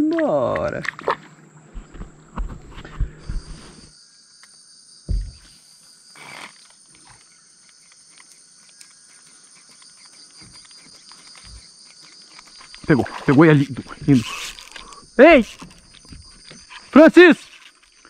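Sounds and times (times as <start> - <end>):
insect chorus: 0.0 - 18.0
low thump: 5.1 - 5.4.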